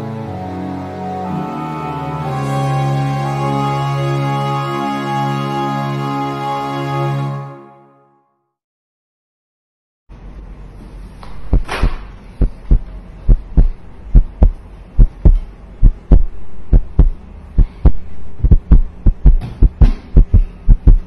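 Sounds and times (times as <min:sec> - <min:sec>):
steady low hum: 0:10.1 - 0:21.0
deep heartbeat-like thumps: 0:11.3 - 0:21.0.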